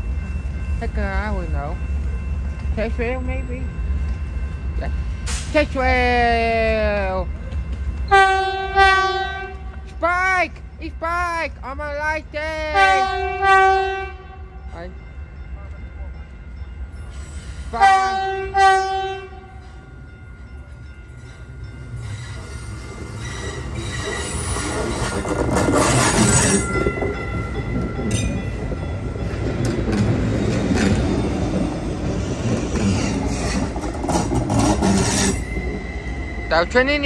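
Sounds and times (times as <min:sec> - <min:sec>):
train rumbling past: 0:00.0 - 0:37.0
train horn blasts: 0:08.1 - 0:09.9, 0:12.7 - 0:14.7, 0:17.7 - 0:19.6
train wheels squealing: 0:16.8 - 0:17.8, 0:21.1 - 0:29.0, 0:30.2 - 0:37.0.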